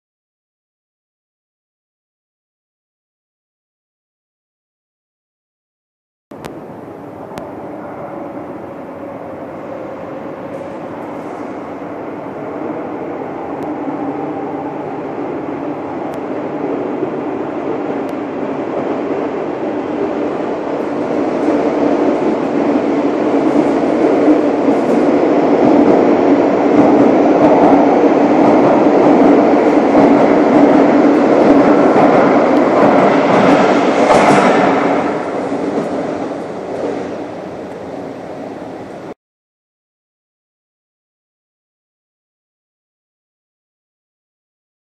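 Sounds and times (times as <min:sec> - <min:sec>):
electric train rumbling past: 0:06.4 - 0:39.2.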